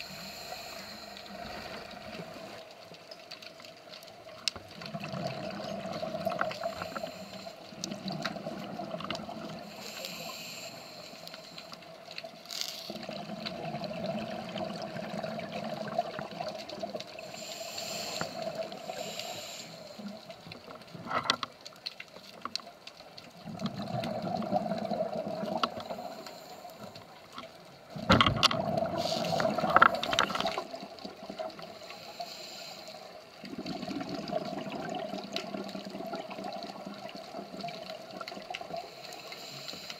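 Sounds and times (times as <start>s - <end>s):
diver hissing inhalations: 0.0s - 2.0s, 6.5s - 7.6s, 9.7s - 11.7s, 17.3s - 20.1s, 31.8s - 33.1s, 39.0s - 39.9s
bubbling exhalations: 23.4s - 26.1s, 28.4s - 30.8s, 33.4s - 37.1s.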